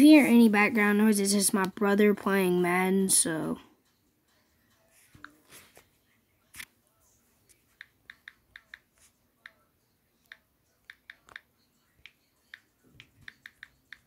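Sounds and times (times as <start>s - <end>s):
taps on phone keyboard: 7.7s - 9.6s, 10.3s - 14.0s.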